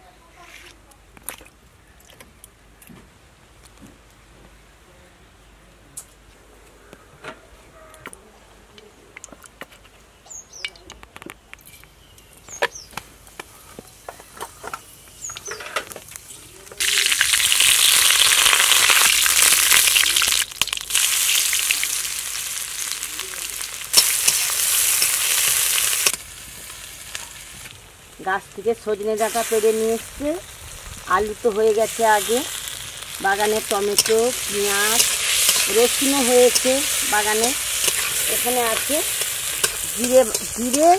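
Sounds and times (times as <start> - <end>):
spices sizzling in hot oil: 13.3 - 40.9
metal spatula stirring: 33.3 - 40.9.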